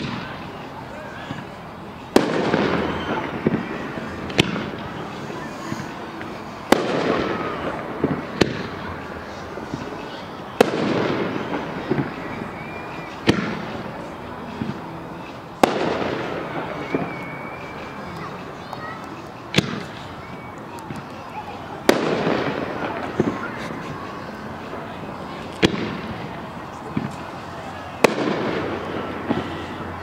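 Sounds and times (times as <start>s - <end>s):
faint sharp reports: 0.0s - 30.0s
rolling crackle of fireworks: 0.0s - 30.0s
firework shells bursting: 21.8s - 23.4s.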